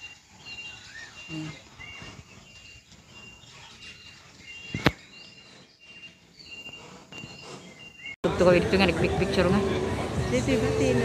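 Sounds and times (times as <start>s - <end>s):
bird chirps: 0.0s - 8.2s.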